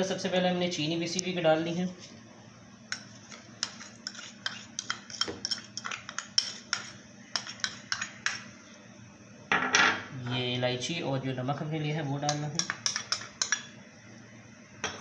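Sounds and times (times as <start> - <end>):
metal spoon clinking on dishes: 3.6 - 8.4, 12.3 - 13.8.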